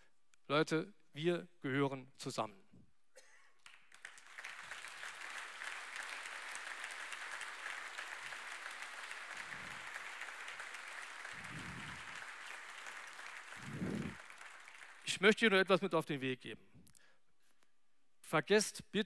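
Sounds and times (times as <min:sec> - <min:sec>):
audience applauding: 0:03.6 - 0:15.1.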